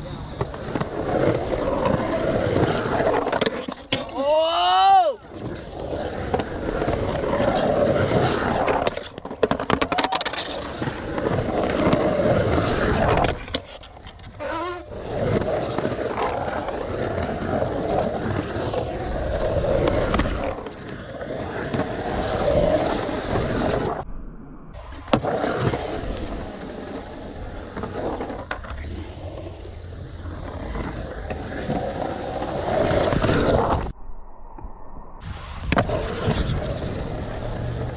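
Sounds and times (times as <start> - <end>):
skateboard wheels rolling on concrete: 0.0 - 37.9
skateboard clacks: 6.2 - 23.6.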